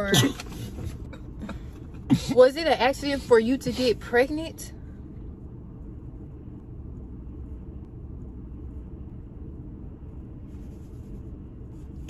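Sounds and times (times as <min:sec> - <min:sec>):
car cabin rumble: 0:00.0 - 0:12.0.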